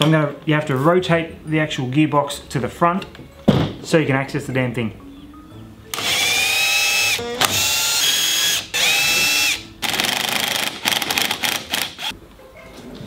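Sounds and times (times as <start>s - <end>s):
impact driver whining: 5.9s - 12.1s.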